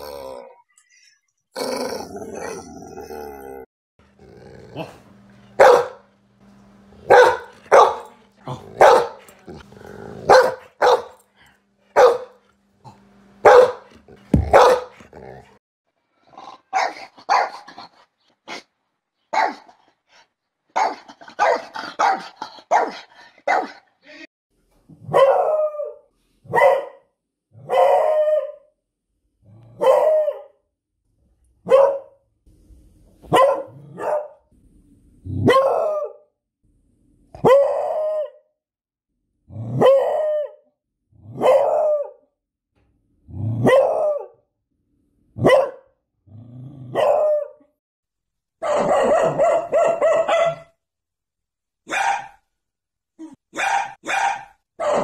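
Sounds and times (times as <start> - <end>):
dog baying barks: 5.6 - 6.1, 7.1 - 9.4, 10.2 - 11.2, 12.0 - 12.4, 13.4 - 15.3, 25.1 - 27.0, 31.7 - 32.2, 33.3 - 34.4, 45.4 - 45.9, 48.6 - 50.7, 51.9 - 52.4, 53.5 - 55.0.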